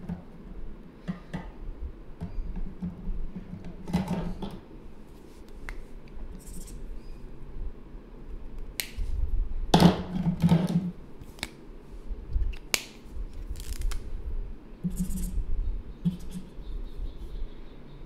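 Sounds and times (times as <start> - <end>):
scraping rustles on desk: 14.9 - 15.4.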